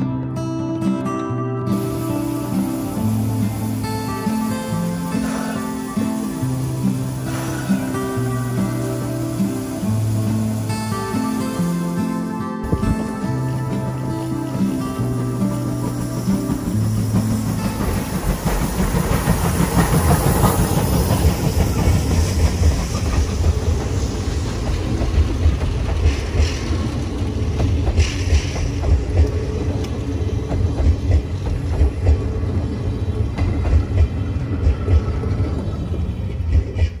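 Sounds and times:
steam locomotive passing: 0:00.0 - 0:37.0
wheels clacking over rail joints: 0:01.7 - 0:37.0
wind buffeting microphone: 0:12.6 - 0:13.2.

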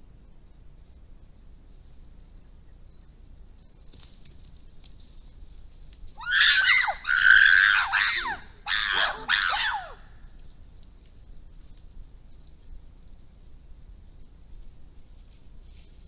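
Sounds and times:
chimpanzees screaming: 0:06.2 - 0:10.1.

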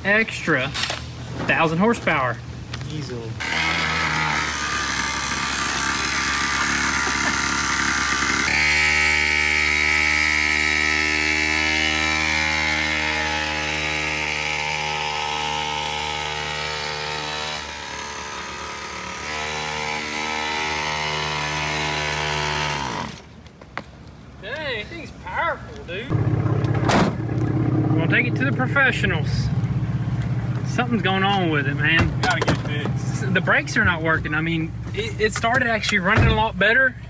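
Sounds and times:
two-stroke engine revving: 0:03.4 - 0:23.2.

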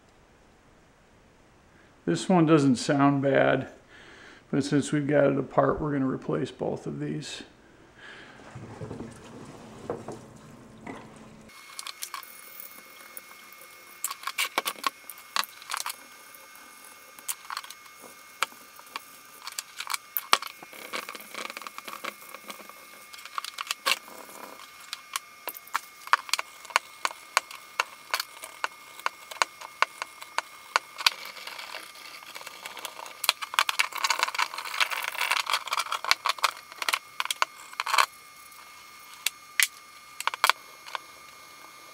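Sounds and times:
faint steady whine: 0:00.0 - 0:41.9
wet scrubbing: 0:08.2 - 0:12.2.

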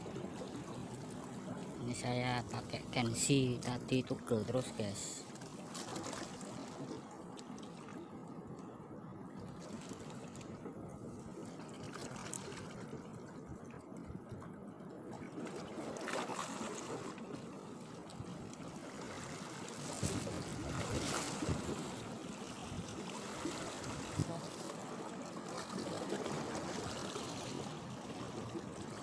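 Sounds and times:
water splashes: 0:00.0 - 0:08.6, 0:09.3 - 0:29.0
small waves lapping: 0:00.0 - 0:29.0.

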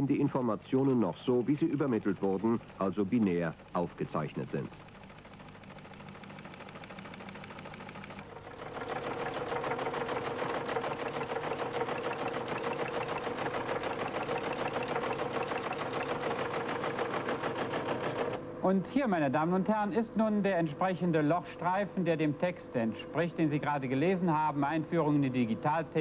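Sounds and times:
teleprinter running hum: 0:00.0 - 0:26.0
teleprinter typing clatter: 0:01.0 - 0:18.4.

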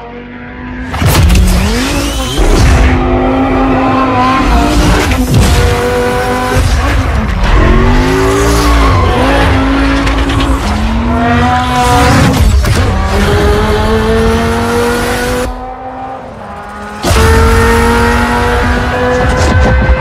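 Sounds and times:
sports car engine revving: 0:00.0 - 0:20.0
tyre squeal: 0:01.6 - 0:02.6.

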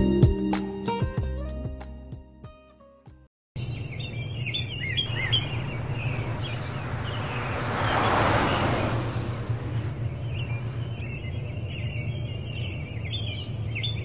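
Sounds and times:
birds chirping: 0:03.6 - 0:14.0
low outdoor hum: 0:03.6 - 0:14.0
rush of noise: 0:05.0 - 0:11.0.

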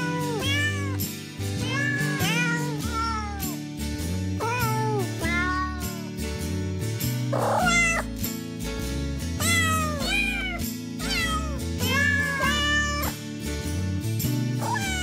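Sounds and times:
cats meowing: 0:00.0 - 0:01.0, 0:01.6 - 0:03.6, 0:04.4 - 0:06.0, 0:07.4 - 0:08.1, 0:09.4 - 0:13.1, 0:14.6 - 0:15.0
background music: 0:00.0 - 0:15.0.

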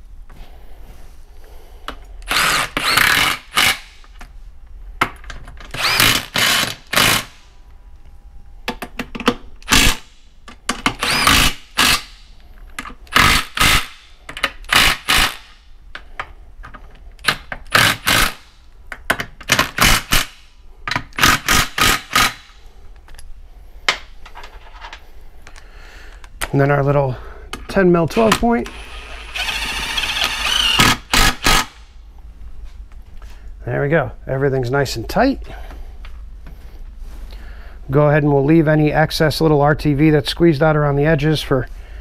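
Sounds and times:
cordless impact driver bursts: 0:02.2 - 0:04.0, 0:05.7 - 0:07.4, 0:09.6 - 0:10.2, 0:11.0 - 0:12.3, 0:13.1 - 0:14.0, 0:14.7 - 0:15.6, 0:17.3 - 0:18.5, 0:21.2 - 0:22.6, 0:28.7 - 0:31.9.

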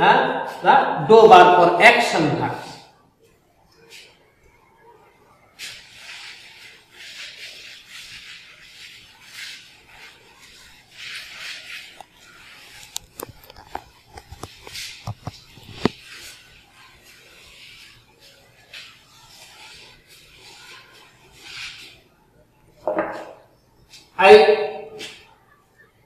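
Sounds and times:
duster rubbing on blackboard: 0:05.6 - 0:22.1.

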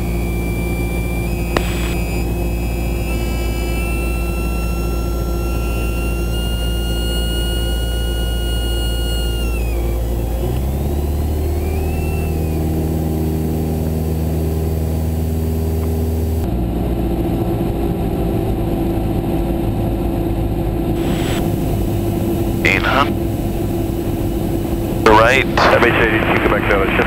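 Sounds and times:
stall warning horn: 0:00.0 - 0:15.3
aircraft engine cabin drone: 0:00.0 - 0:27.0.

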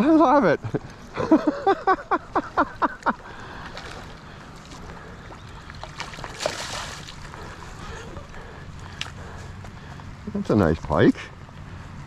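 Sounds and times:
man laughing: 0:00.0 - 0:03.3
wind and water hiss: 0:00.0 - 0:12.0
fish splashing: 0:03.2 - 0:08.3.

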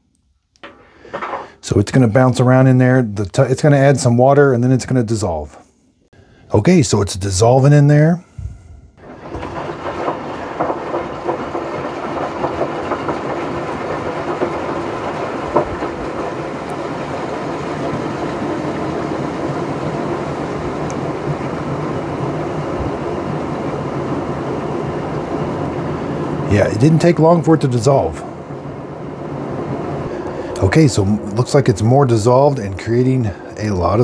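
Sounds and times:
small knocks: 0:00.6 - 0:01.5, 0:09.0 - 0:19.0
washing machine drum turning: 0:00.6 - 0:01.5, 0:09.0 - 0:34.0.

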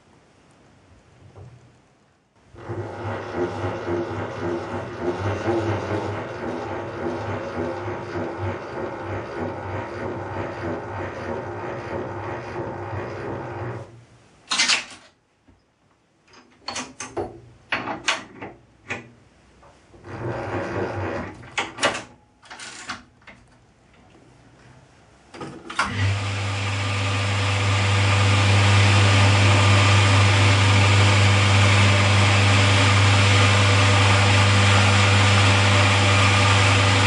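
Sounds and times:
milling machine motor humming: 0:02.6 - 0:13.9, 0:25.8 - 0:37.0.

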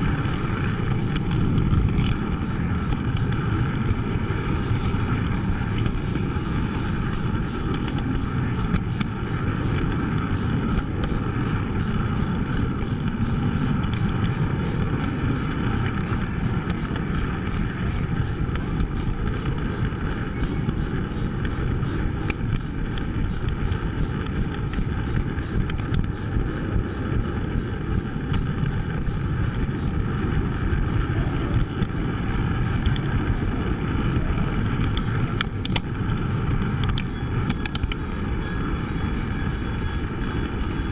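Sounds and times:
model train rumbling on track: 0:00.0 - 0:40.9
faint clicks: 0:34.8 - 0:35.9.

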